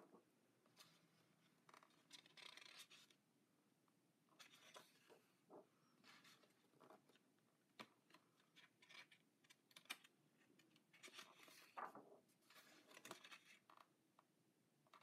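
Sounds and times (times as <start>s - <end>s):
paper pages being turned: 1.6s - 3.2s, 4.4s - 5.2s, 11.0s - 13.9s.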